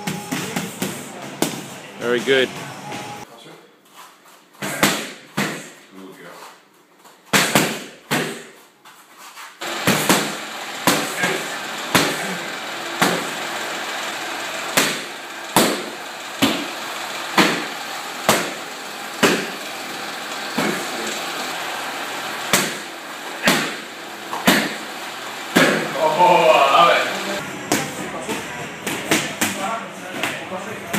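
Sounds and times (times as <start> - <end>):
punches slapping pads: 4.6 - 5.7, 7.3 - 8.5, 9.8 - 12.4, 13.0 - 13.3, 14.8 - 16.7, 17.4 - 17.7, 18.3 - 18.6, 19.2 - 19.5, 22.5 - 24.8, 25.5 - 25.9.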